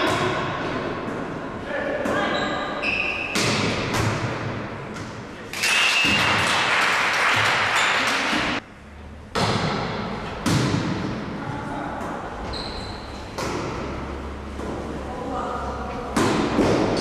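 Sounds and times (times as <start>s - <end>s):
volleyball hits: 3.2s - 6.7s, 9.3s - 11.4s, 13.3s - 14.8s, 16.1s - 17.0s.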